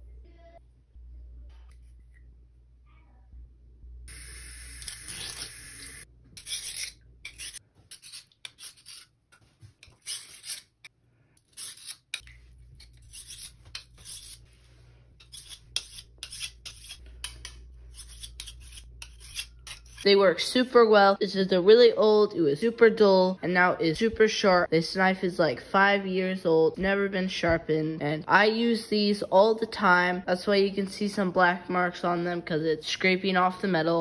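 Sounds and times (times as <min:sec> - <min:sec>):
sharpening stone scraping knife blade: 0:06.4 - 0:09.1, 0:09.8 - 0:14.5, 0:15.2 - 0:20.1.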